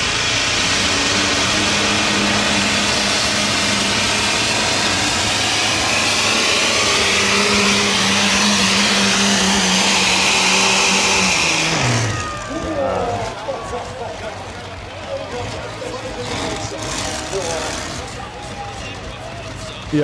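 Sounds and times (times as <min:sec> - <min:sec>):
tractor engines at full throttle: 0:00.0 - 0:20.0.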